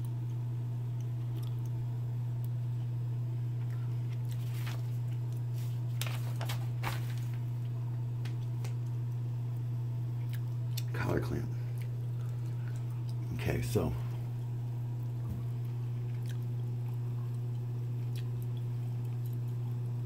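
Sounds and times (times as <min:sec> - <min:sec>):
low hum: 0:00.0 - 0:20.0
paper pages rustling: 0:04.3 - 0:07.5.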